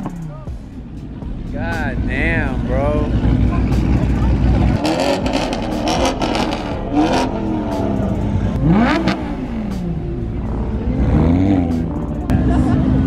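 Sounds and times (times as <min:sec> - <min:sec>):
sports car engine revving: 0:00.0 - 0:13.0.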